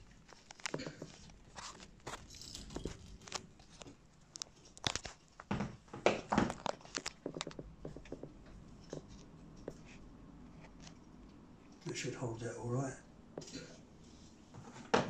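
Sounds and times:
paper crinkling and crackling: 0:00.0 - 0:11.0.

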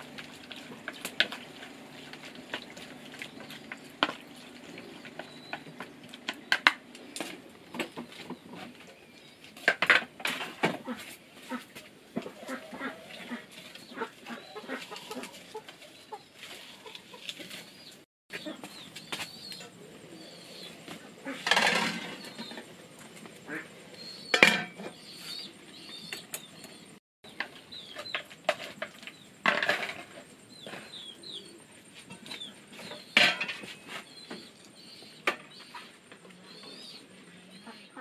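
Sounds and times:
chickens peeping: 0:10.8 - 0:28.2.

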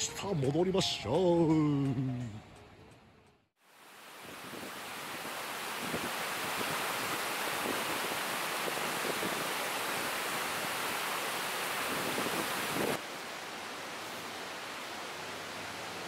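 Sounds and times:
river flowing over rocks: 0:03.7 - 0:16.0.

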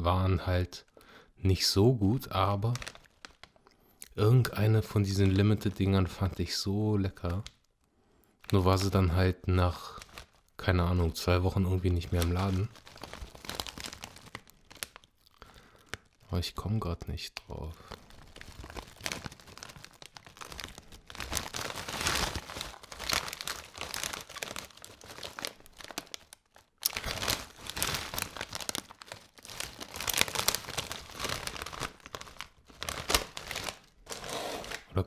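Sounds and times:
plastic crisp bag crinkling: 0:02.2 - 0:03.8, 0:08.4 - 0:16.3, 0:17.5 - 0:35.0.

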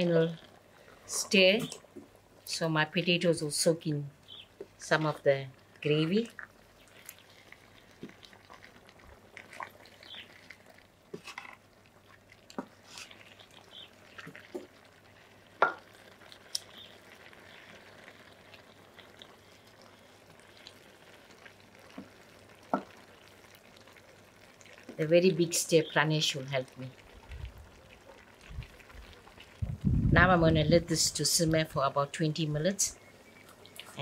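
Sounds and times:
wooden paddle scraping metal pot: 0:11.1 - 0:11.6.

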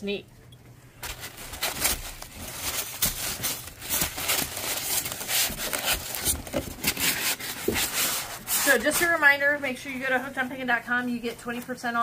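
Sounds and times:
styrofoam scraping cardboard: 0:01.0 - 0:09.3
paper and bubble wrap rustling: 0:01.0 - 0:12.0.

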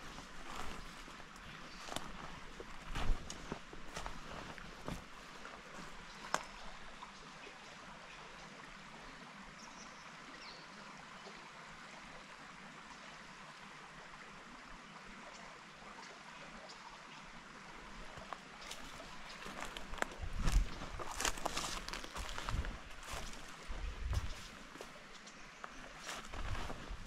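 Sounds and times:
creek water running: 0:00.0 - 0:27.0.

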